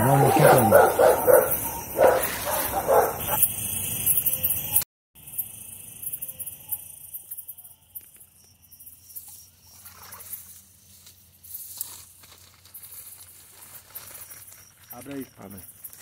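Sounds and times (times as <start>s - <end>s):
night insects hissing: 0.0s - 16.0s
hands rustling through grass: 9.7s - 15.0s.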